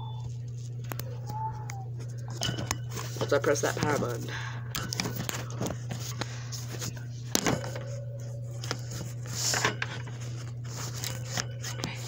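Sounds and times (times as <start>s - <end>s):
steady low hum: 0.0s - 12.0s
phone handling knocks and rustles: 7.3s - 8.0s.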